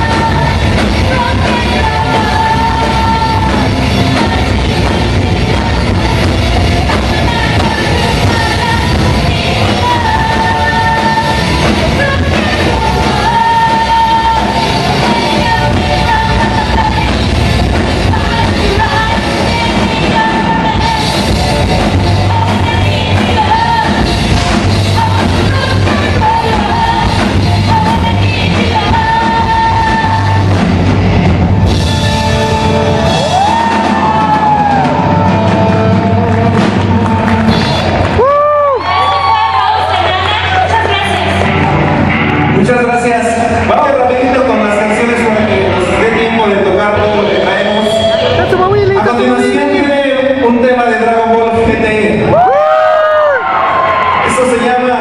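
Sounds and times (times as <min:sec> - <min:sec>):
person singing: 0:00.0 - 0:30.7
rock band playing: 0:00.0 - 0:51.6.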